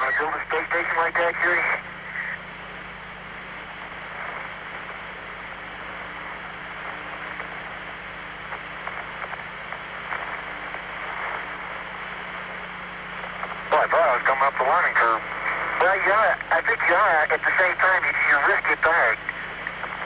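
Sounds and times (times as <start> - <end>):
faint low hum: 0.0 - 20.0
radio static hiss: 0.0 - 20.0.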